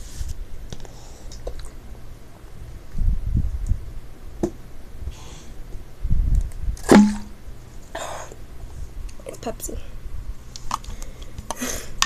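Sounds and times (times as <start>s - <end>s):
breathy exhale: 11.0s - 12.0s.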